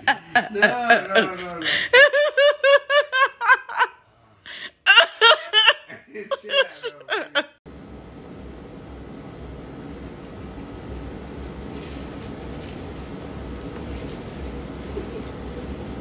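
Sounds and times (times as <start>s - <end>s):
high-pitched laughter: 0.0s - 4.0s, 4.7s - 7.6s.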